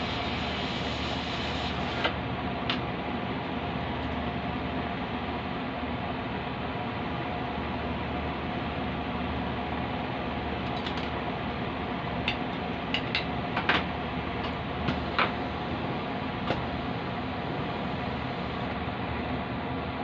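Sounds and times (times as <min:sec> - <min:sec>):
torch flame hissing: 0:00.0 - 0:02.2, 0:14.7 - 0:18.8.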